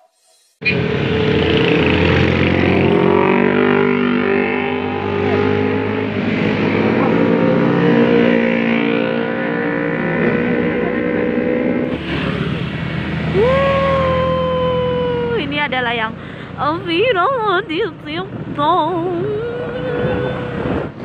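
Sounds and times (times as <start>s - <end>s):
motorcycles riding past: 0.7s - 16.6s.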